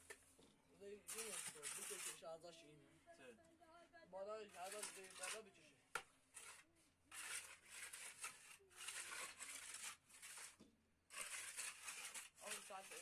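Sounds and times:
trowel scraping wet cement: 1.0s - 2.3s, 4.5s - 5.6s, 6.3s - 13.0s.

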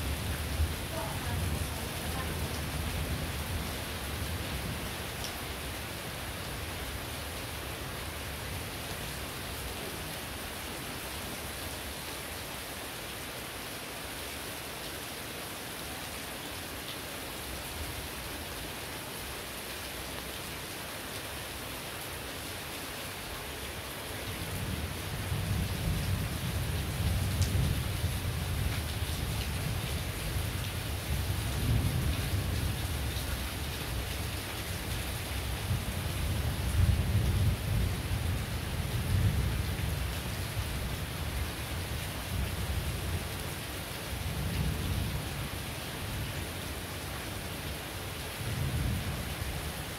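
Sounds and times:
heavy rain: 0.0s - 49.9s
low rumble of thunder: 24.5s - 34.2s, 35.4s - 41.4s, 48.4s - 49.6s.

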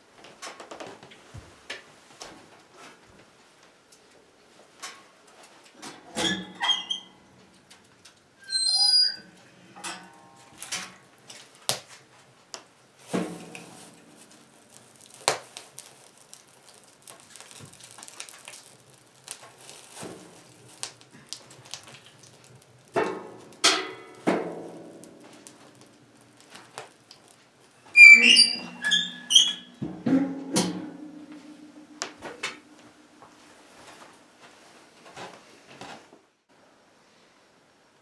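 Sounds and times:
short squeaking: 8.4s - 9.3s, 27.9s - 29.8s
metal stove door clanking shut: 28.3s - 31.4s
logs knocking in stove: 29.8s - 31.3s.

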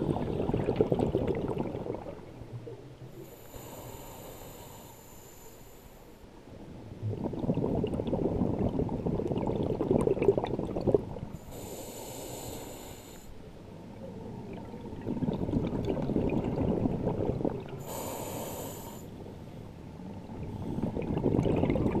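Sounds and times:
bubbling exhalations underwater: 0.0s - 2.2s, 7.0s - 11.2s, 14.5s - 18.0s, 20.8s - 22.0s
hissing regulator inhalations: 3.2s - 6.2s, 11.4s - 13.4s, 17.8s - 19.2s.

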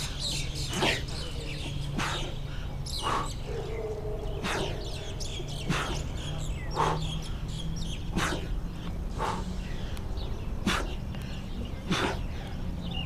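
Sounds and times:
faint birds chirping: 0.0s - 13.0s
man breathing out hard: 1.9s - 3.4s, 4.3s - 7.5s, 8.1s - 12.7s.

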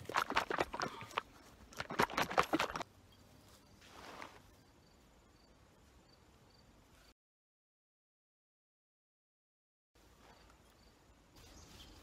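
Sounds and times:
faint insect chirping: 2.9s - 7.2s, 10.1s - 12.0s.

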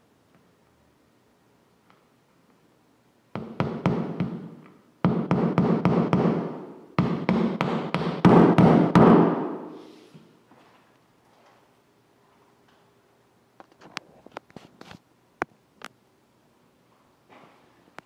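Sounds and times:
hammer driving a nail: 3.4s - 9.8s.

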